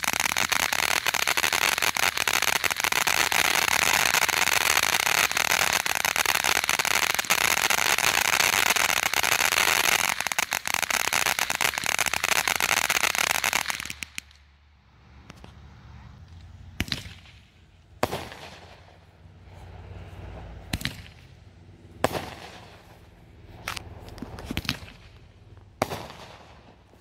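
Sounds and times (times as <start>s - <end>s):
firework bangs: 0.0s - 14.4s, 16.7s - 19.1s, 20.6s - 21.4s, 22.0s - 27.0s
fountain firework crackling hiss: 0.0s - 14.4s.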